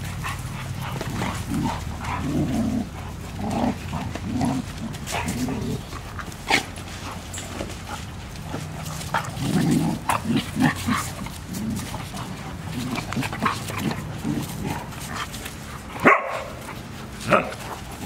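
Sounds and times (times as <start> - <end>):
dogs vocalising while playing: 0.0 - 18.0.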